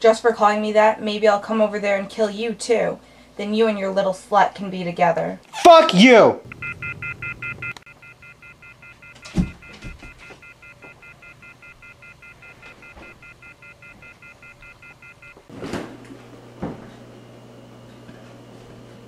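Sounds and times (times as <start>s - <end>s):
phone off-hook pulsing beeps: 6.5s - 15.4s.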